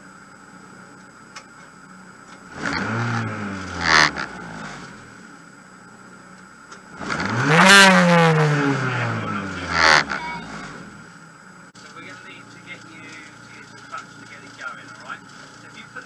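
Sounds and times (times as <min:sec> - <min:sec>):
rally car engine revving: 0:02.3 - 0:05.4, 0:06.8 - 0:11.4
sharp exhaust burst: 0:02.5 - 0:05.2, 0:07.0 - 0:11.1.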